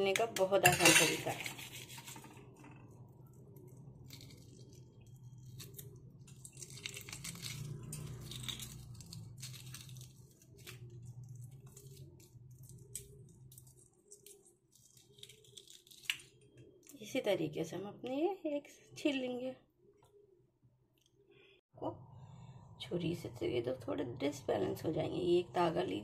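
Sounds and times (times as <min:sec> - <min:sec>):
eggshell crackling as peeled: 0:01.6 - 0:17.0.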